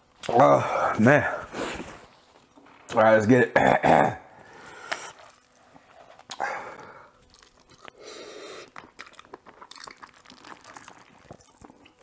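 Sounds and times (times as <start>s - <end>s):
chewing: 4.9s - 12.0s.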